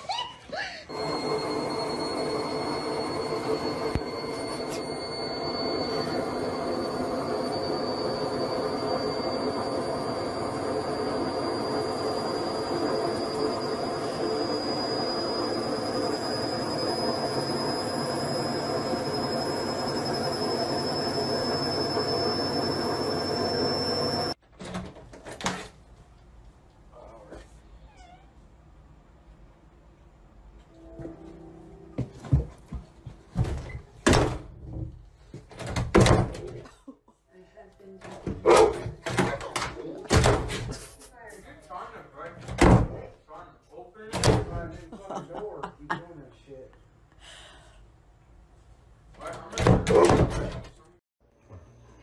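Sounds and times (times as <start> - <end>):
washing machine spinning: 0.9 - 24.4.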